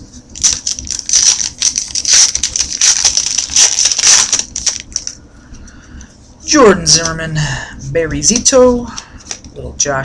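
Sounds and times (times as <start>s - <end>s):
foil wrapper tearing and crinkling: 0.4s - 5.2s.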